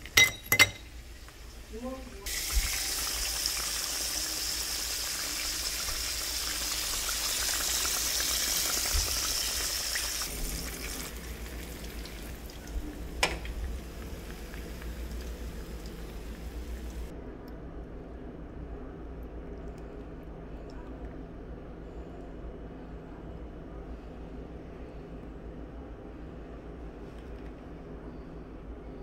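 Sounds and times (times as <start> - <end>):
fish deep-frying in oil: 0.7 - 17.1.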